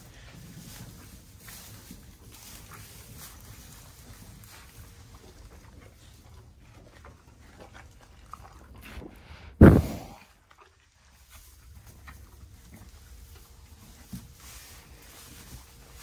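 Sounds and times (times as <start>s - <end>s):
horses chewing hay: 0.0s - 16.0s
horse snorting: 9.6s - 10.3s.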